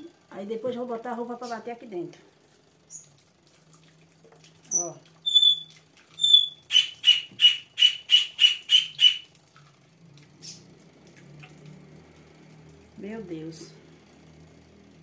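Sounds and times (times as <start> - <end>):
high chirping squeaks: 4.7 - 9.2.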